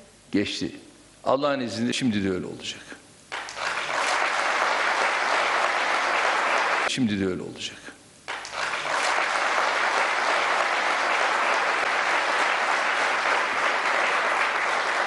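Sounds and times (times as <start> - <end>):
large audience applauding: 3.3 - 6.9, 8.3 - 15.0.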